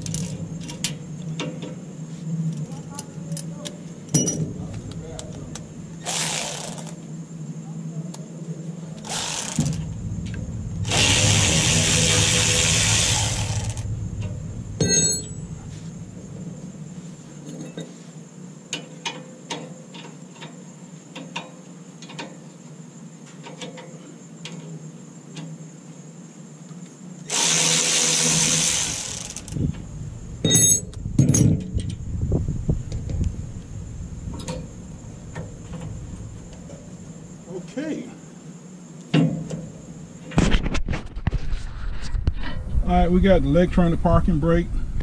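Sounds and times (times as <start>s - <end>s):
cordless power tool running: 6.0s - 7.0s, 9.0s - 9.9s, 10.8s - 13.9s, 27.3s - 29.7s
metallic clinks of tools: 14.8s - 15.4s, 30.4s - 31.5s.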